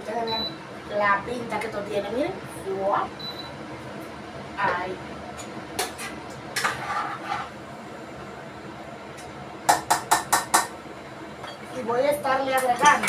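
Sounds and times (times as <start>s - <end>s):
spoon stirring in a metal pot: 5.9s - 7.5s
spoon knocking on pot: 9.7s - 10.7s.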